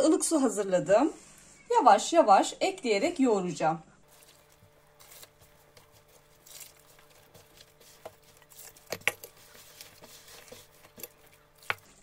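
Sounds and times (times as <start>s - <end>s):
hand kneading dough: 4.0s - 12.0s.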